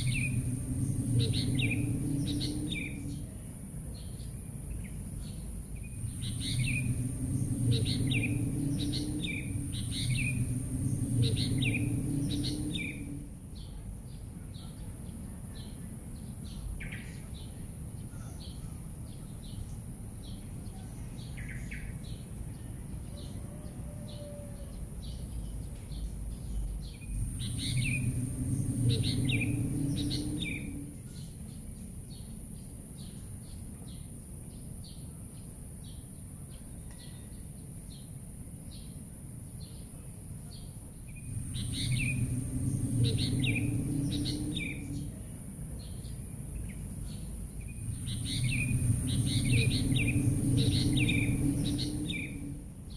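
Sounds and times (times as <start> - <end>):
low rumble: 0.0 - 14.4, 25.0 - 32.4, 40.8 - 52.9
small birds chirping: 0.0 - 23.3, 24.1 - 39.0, 39.6 - 52.9
steady high-pitched hiss: 0.0 - 52.9.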